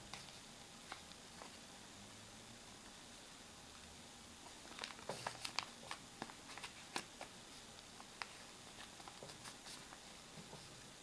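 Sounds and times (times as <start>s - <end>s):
paper crackling as it is folded: 4.4s - 10.8s.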